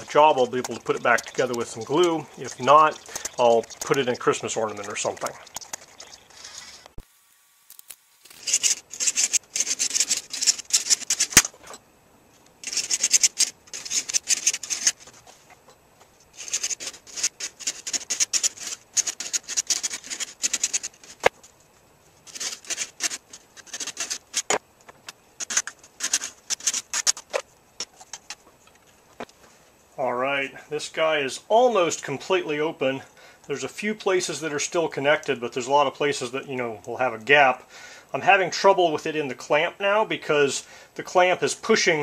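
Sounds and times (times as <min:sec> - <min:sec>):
coping saw cutting plastic: 0:16.4 - 0:21.3.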